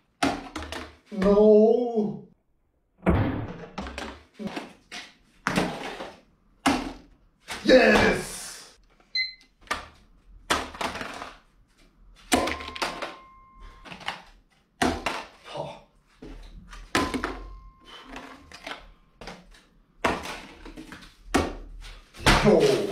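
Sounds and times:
electronic timer beep: 9.2s - 9.4s
short ringing tone: 12.5s - 13.8s.

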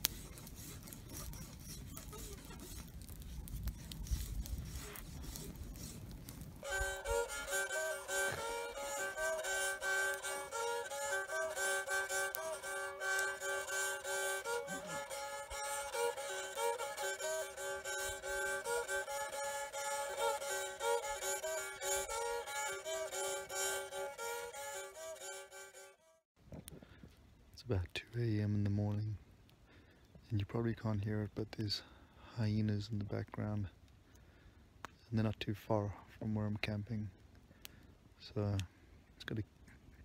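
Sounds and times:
low drone note: 6.6s - 25.9s
bowed stick fiddle melody: 6.6s - 26.2s.

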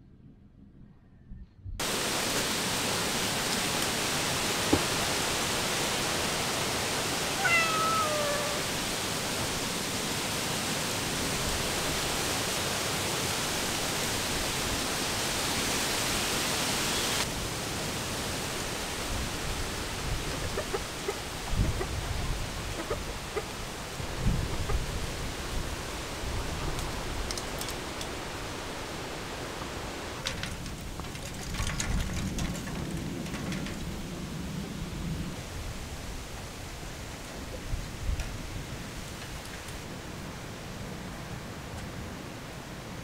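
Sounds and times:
heavy rain hissing: 1.8s - 33.3s
cat meowing: 7.3s - 8.7s.

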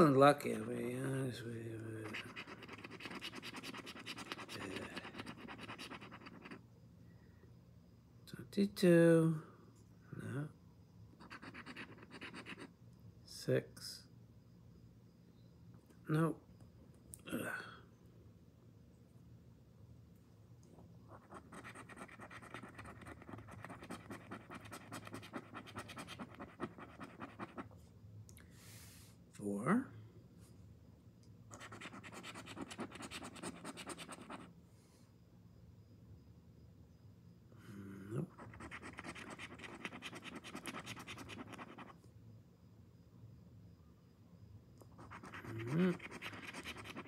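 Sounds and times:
coin scratching lottery ticket: 2.0s - 6.6s, 11.2s - 12.7s, 21.1s - 27.6s, 31.5s - 34.5s, 38.3s - 41.9s, 44.9s - 47.0s.

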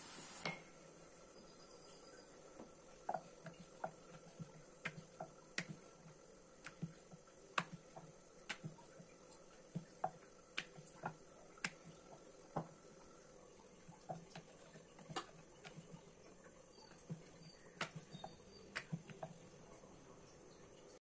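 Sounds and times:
rolling pin knocking on wooden board: 17.0s - 19.4s.

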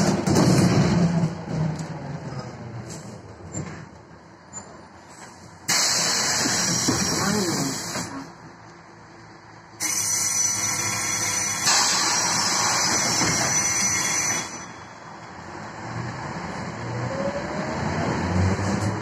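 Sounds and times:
compressed air hissing: 5.7s - 6.9s.

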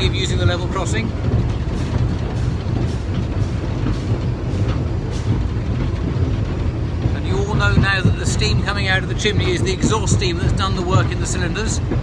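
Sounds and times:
steam locomotive running rumble: 0.0s - 12.0s.

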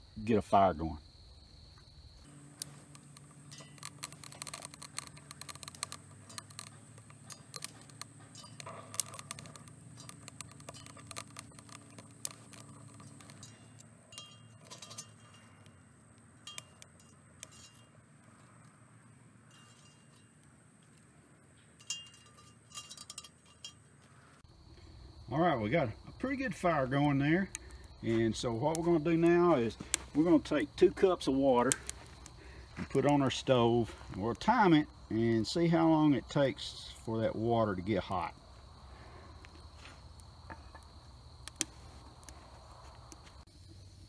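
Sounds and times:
twigs crackling and popping in fire: 1.6s - 43.6s
sticks fed into stove: 2.4s - 15.7s.

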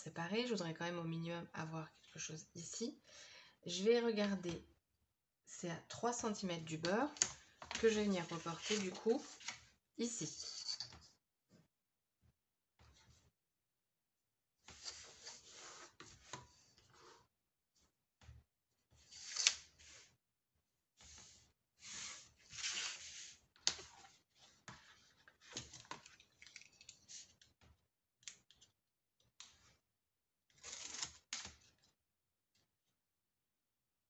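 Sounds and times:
paper rustling: 7.4s - 9.6s.

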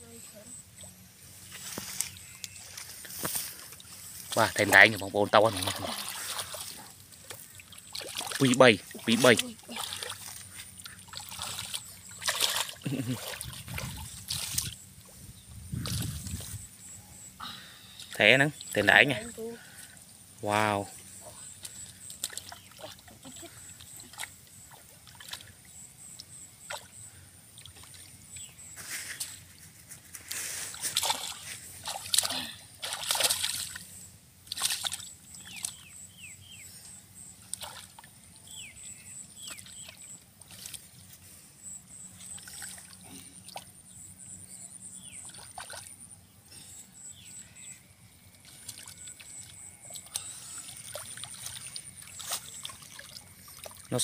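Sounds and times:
hands splashing in muddy water: 4.3s - 14.8s, 30.4s - 33.8s, 34.5s - 35.8s, 48.4s - 54.0s.

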